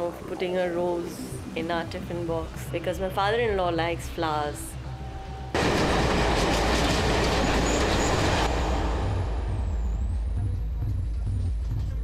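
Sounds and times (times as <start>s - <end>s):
electric train clattering on rails: 5.6s - 12.0s.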